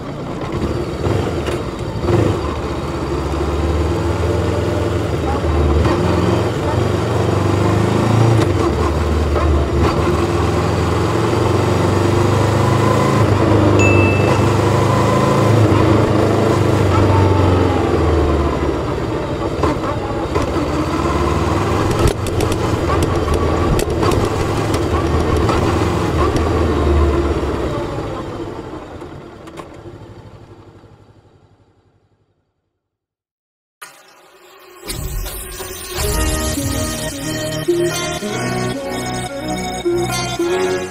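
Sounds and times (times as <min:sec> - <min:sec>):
motorcycle engine droning: 0:00.0 - 0:32.6.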